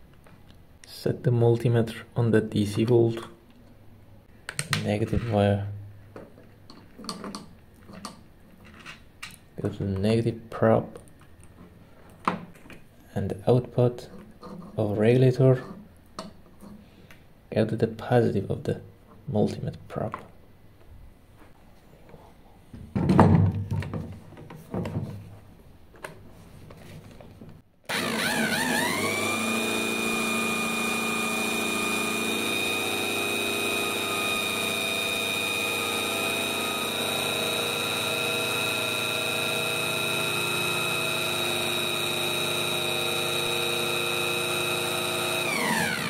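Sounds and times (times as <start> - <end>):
electric drill whine: 27.9 - 46.0.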